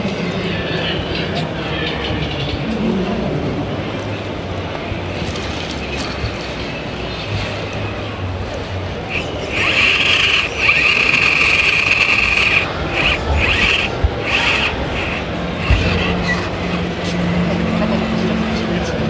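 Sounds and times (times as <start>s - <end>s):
steady background din: 0.0s - 19.0s
electric motor whine: 9.1s - 17.8s.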